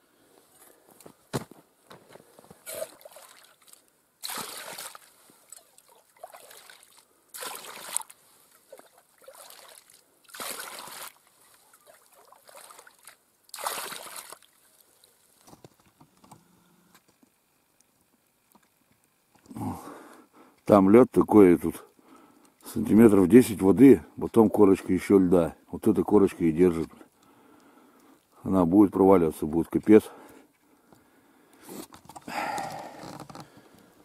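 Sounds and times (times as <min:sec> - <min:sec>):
water poured into plastic bucket: 0:02.7 - 0:14.6.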